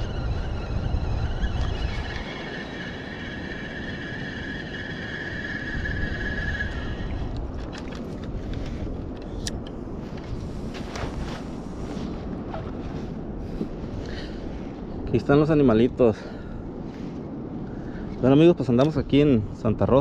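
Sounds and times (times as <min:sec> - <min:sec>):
fishing reel whirring: 0:00.0 - 0:07.9
wind on microphone: 0:00.0 - 0:20.0
reel clicks: 0:06.0 - 0:10.3.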